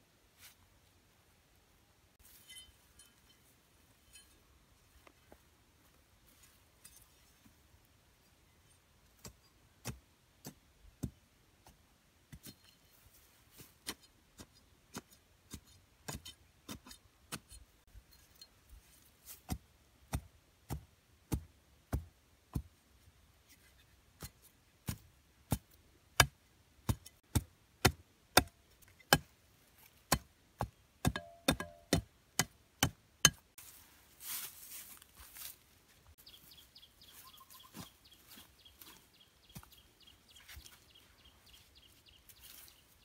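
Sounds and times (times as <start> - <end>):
knife striking wooden post: 24.2 - 29.3, 30.1 - 33.4.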